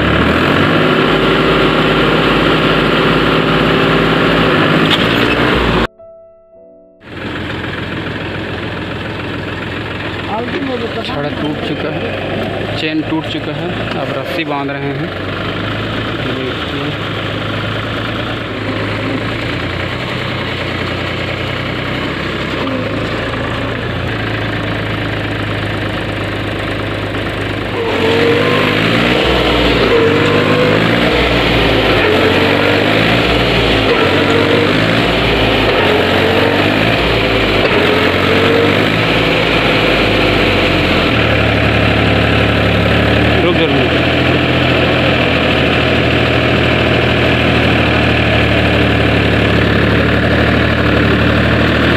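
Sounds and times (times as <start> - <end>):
tractor diesel engine idling: 0.0 - 5.9, 7.0 - 51.9.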